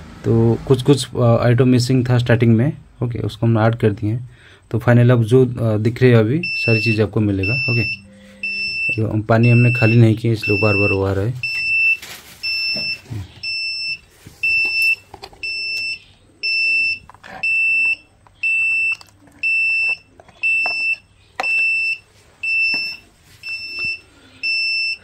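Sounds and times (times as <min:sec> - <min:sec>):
piezo buzzer beeping: 0:06.4 - 0:25.0.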